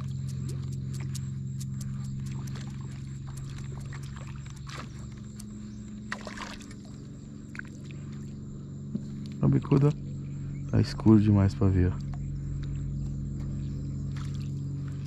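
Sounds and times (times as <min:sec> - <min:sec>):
steady low hum: 0:00.0 - 0:15.0
light water sounds: 0:02.0 - 0:08.4, 0:14.1 - 0:15.0
fish splashing at surface: 0:06.1 - 0:06.9.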